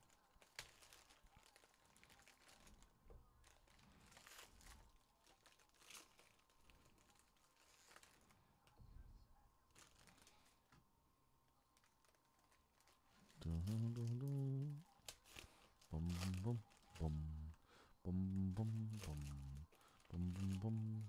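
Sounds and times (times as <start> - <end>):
foil wrappers crinkling: 0.0 - 8.8, 9.7 - 10.8, 11.8 - 21.0
cards rustling: 18.3 - 21.0.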